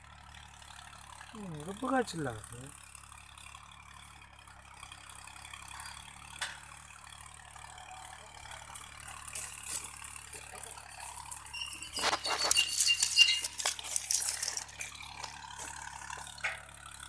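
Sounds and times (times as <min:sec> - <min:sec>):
rustling: 0:09.3 - 0:16.4.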